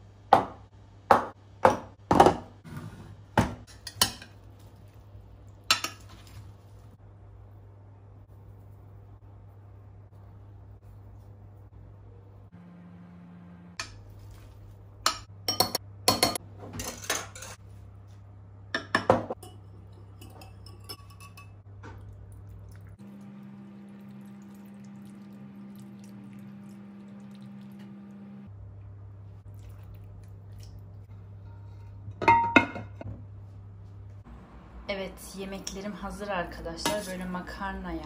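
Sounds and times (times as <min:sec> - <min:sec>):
steady low hum: 0:03.8 - 0:16.7
pots and pans clinking: 0:31.5 - 0:33.1.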